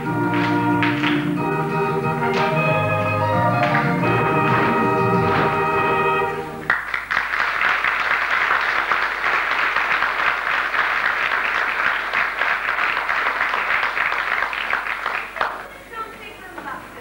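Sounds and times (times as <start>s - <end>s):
song's final held chord: 0.0s - 6.7s
audience applauding: 0.0s - 15.9s.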